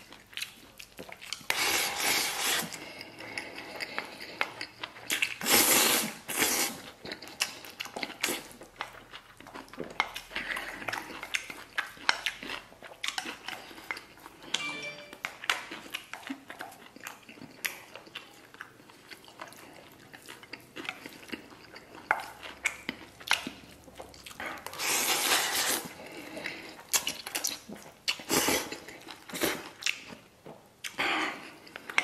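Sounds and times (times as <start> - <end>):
chewing: 0.0 - 14.6, 15.2 - 32.0.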